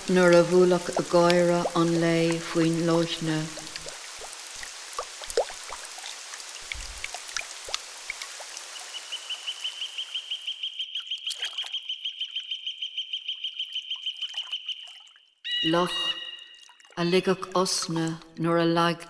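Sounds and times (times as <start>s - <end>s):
raindrops pattering on a lake: 0.0s - 12.2s, 13.4s - 15.4s.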